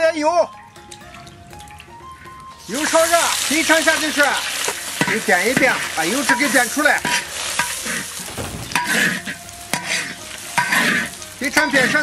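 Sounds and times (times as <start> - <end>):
food sizzling in oil: 2.5 - 12.0.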